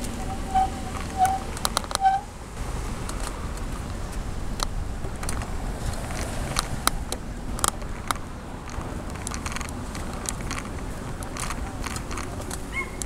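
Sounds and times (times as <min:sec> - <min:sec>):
bicycle tyre and wind rumble: 0:00.0 - 0:13.0
sharp clicks: 0:03.0 - 0:13.0.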